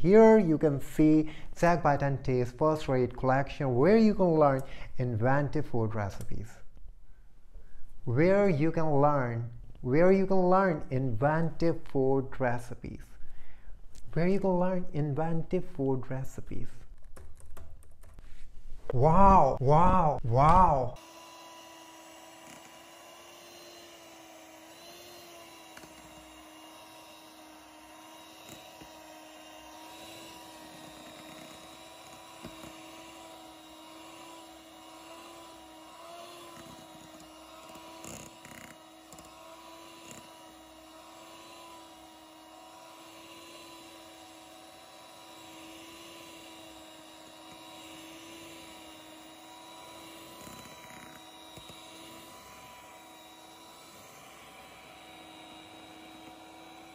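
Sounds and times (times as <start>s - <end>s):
electric mixer whining: 19.2s - 56.9s.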